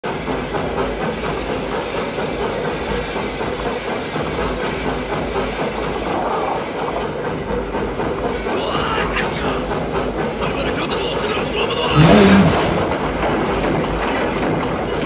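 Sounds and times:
steam locomotive on rails: 0.1s - 11.9s.

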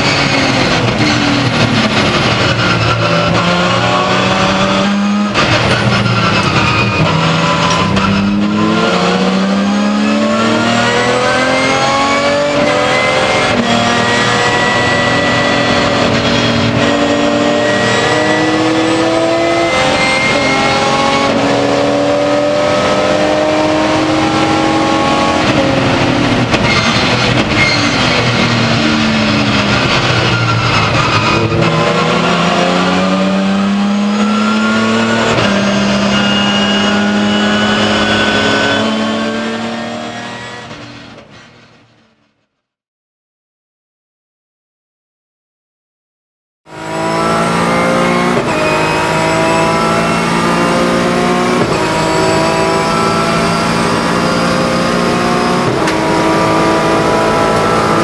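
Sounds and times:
race car engine shifting gears: 0.0s - 41.3s, 46.7s - 58.0s.

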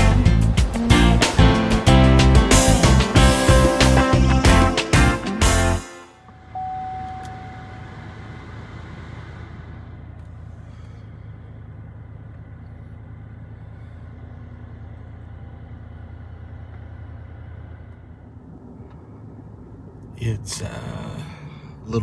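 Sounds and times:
upbeat music: 0.0s - 6.1s
vehicle engine idling: 0.0s - 22.0s
short faint tone: 6.2s - 8.2s.

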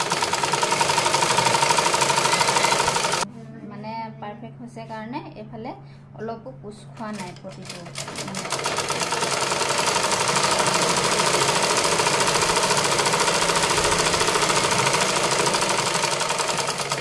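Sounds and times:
sewing machine stitching: 0.0s - 3.2s, 7.1s - 17.0s.

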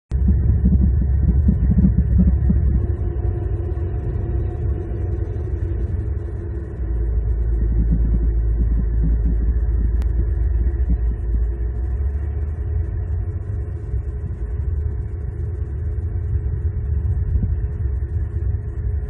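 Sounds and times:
low outdoor rumble: 0.1s - 19.0s
faint click: 10.0s - 10.2s.

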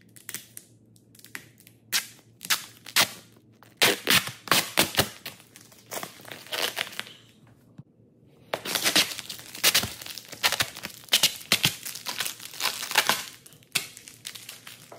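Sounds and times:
plastic film crinkling: 3.6s - 7.3s, 8.5s - 14.9s.

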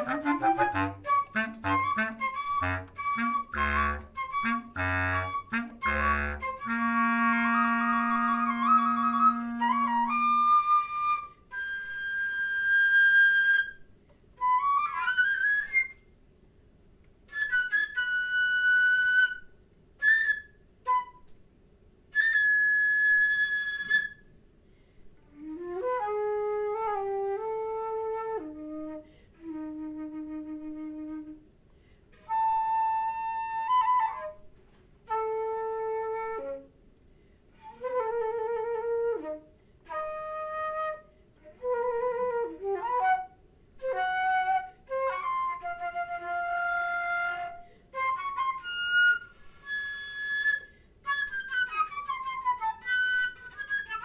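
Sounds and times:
clarinet holding low note: 0.0s - 13.7s
flute playing: 0.0s - 16.1s, 17.3s - 21.4s, 22.1s - 24.3s, 25.3s - 31.5s, 32.2s - 36.7s, 37.6s - 54.0s.

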